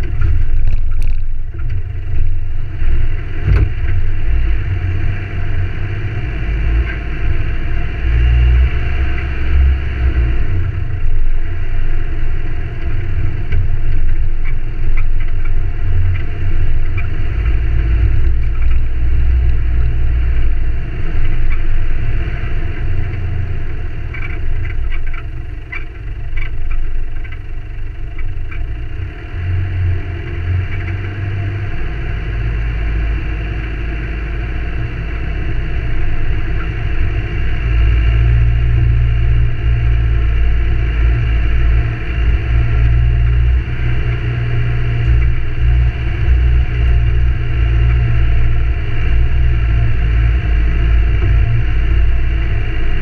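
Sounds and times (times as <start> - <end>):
vehicle engine and tyre rumble: 0.0 - 53.0.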